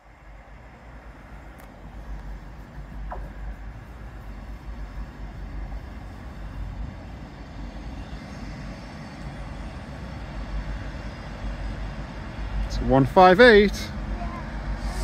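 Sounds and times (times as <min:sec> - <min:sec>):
diesel train running slowly: 0:00.0 - 0:15.0.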